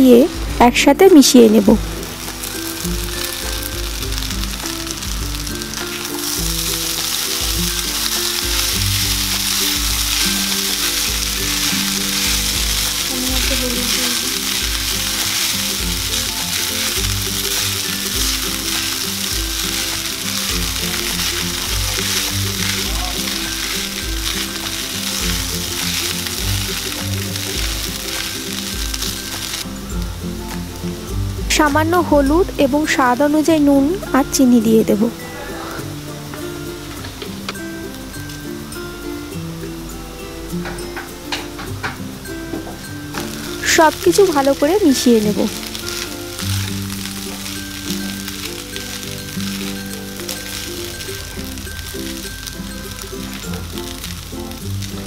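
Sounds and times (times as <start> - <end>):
food sizzling in hot oil: 0.0 - 55.0
soft background music: 0.0 - 55.0
spatula stirring: 1.9 - 31.0, 43.0 - 55.0.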